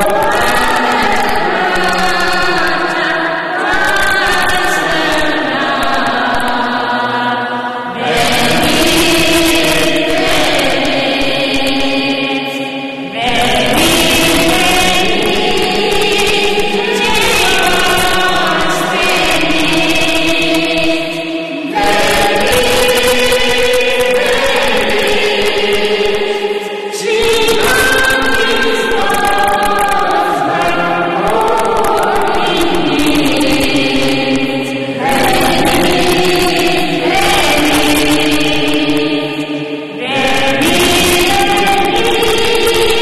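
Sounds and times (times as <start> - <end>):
choir singing a slow chant: 0.0 - 43.0.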